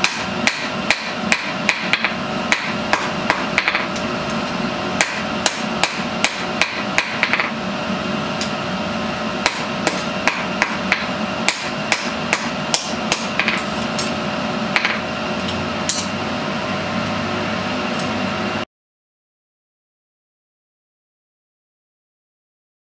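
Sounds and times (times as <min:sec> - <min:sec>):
hammer striking steel on anvil: 0:00.0 - 0:04.1, 0:05.0 - 0:07.6, 0:09.4 - 0:16.2
steady hum: 0:00.0 - 0:18.7.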